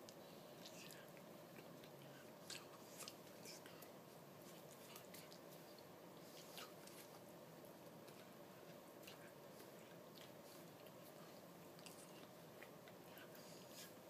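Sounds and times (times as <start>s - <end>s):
faint room hiss: 0.0s - 14.0s.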